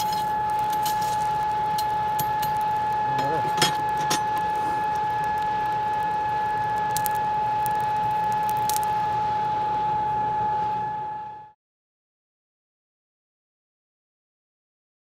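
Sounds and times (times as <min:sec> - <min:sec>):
burning coals crackling: 0:00.0 - 0:10.9
forge blower whining hum: 0:00.0 - 0:11.6.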